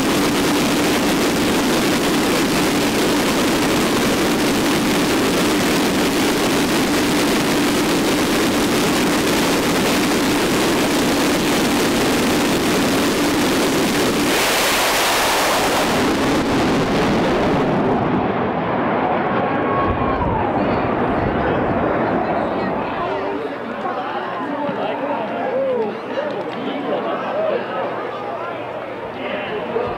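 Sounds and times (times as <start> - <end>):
jet turbine engine roaring: 0.0 - 23.8.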